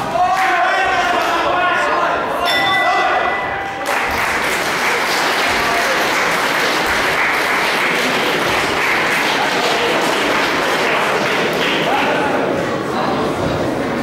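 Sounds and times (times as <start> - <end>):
crowd applauding: 3.7 - 12.6.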